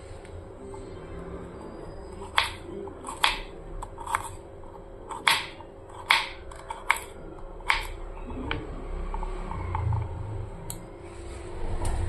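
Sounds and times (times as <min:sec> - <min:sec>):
knife chopping on wooden board: 0:02.4 - 0:03.5, 0:05.1 - 0:07.1, 0:07.7 - 0:07.9.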